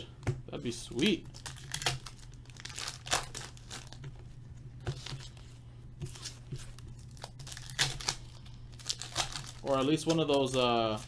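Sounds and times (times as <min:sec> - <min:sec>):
foil wrappers crinkling: 0:00.9 - 0:04.0, 0:06.1 - 0:11.0
foil wrapper tearing: 0:01.3 - 0:04.0, 0:07.0 - 0:11.0.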